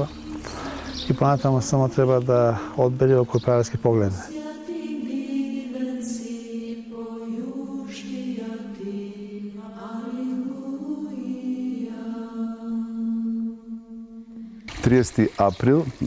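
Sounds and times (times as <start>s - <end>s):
voices chanting slow melody: 0.0s - 16.0s.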